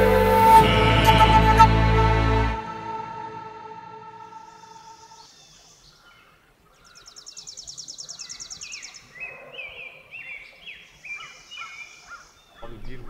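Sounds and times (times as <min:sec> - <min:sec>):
bird high trill: 0:00.0 - 0:05.3
bird chirping: 0:04.1 - 0:13.0.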